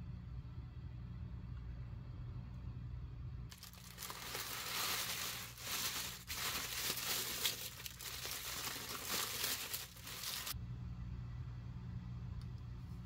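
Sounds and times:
tissue paper crinkling: 3.5s - 10.6s.

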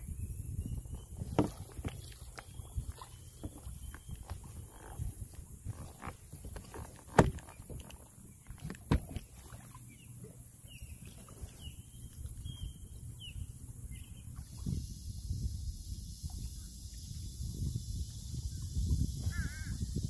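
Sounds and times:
low rumble of wind and water: 0.0s - 20.0s
paddle knocking against kayak: 1.0s - 9.9s.

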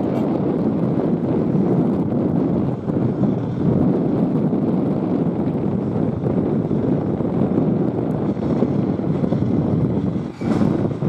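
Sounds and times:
jets taxiing rumble: 0.0s - 11.0s
wind buffeting microphone: 0.0s - 11.0s.

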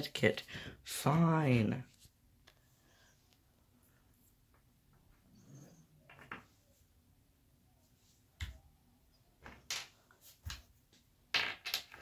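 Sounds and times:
plastic toys tapping on wooden desk: 11.4s - 12.0s.

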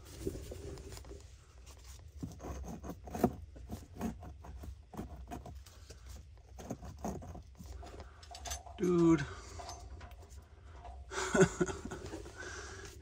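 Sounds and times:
gloved hand scraping stones: 0.0s - 7.9s.

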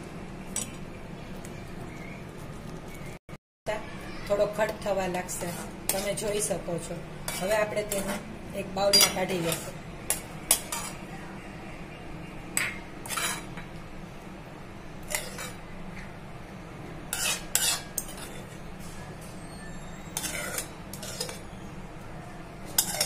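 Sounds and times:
metal spoon scraping a metal pot: 5.2s - 6.6s, 7.2s - 8.3s, 8.9s - 11.0s, 12.6s - 13.6s, 15.0s - 15.6s, 17.1s - 18.6s, 19.4s - 21.6s, 22.7s - 23.0s.

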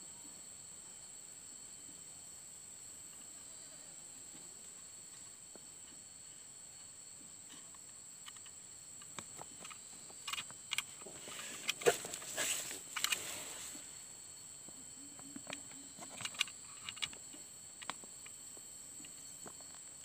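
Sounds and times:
high-pitched insect drone: 0.0s - 20.0s
sharp clicks: 8.2s - 12.2s, 15.4s - 18.4s
rustling: 9.2s - 14.1s.

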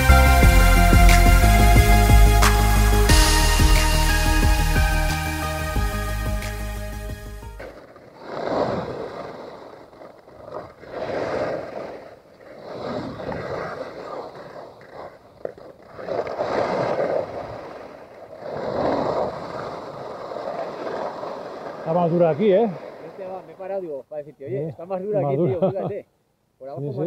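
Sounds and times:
skis scraping hard snow: 7.6s - 23.4s.

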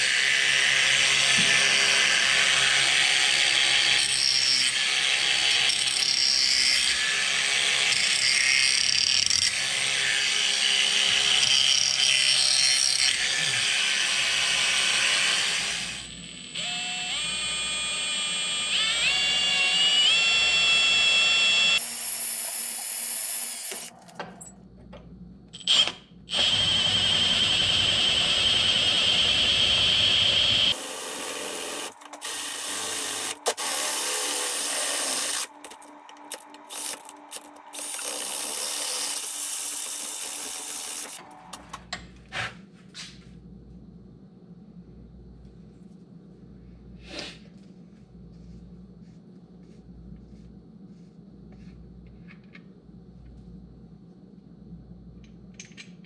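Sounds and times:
power tools whining: 26.3s - 41.6s.

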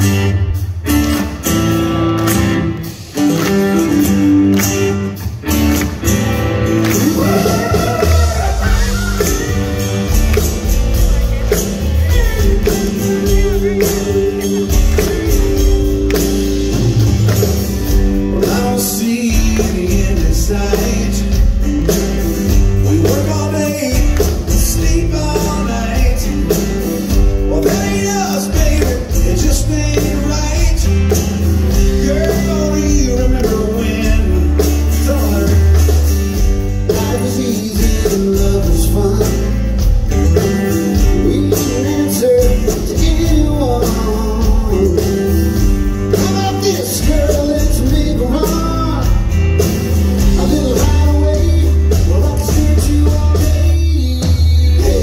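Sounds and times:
country-rock band playing: 0.0s - 55.0s
lead vocal singing: 7.0s - 10.1s, 11.5s - 15.9s, 31.8s - 36.0s, 50.2s - 55.0s.

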